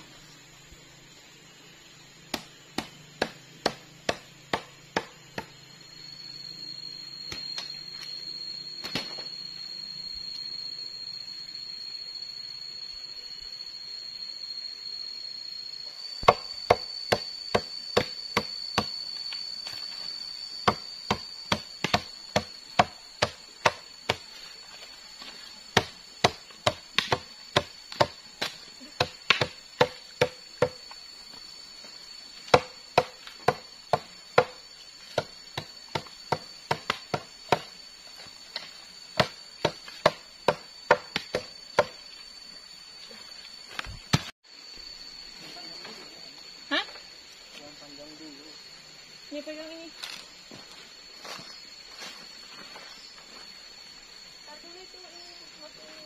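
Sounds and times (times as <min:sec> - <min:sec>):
steady high-pitched buzz: 0:00.0 - 0:56.0
machete chopping leaves on wood: 0:02.2 - 0:05.6, 0:08.8 - 0:09.3, 0:16.2 - 0:24.5, 0:25.2 - 0:31.0, 0:32.4 - 0:42.0, 0:43.7 - 0:44.4.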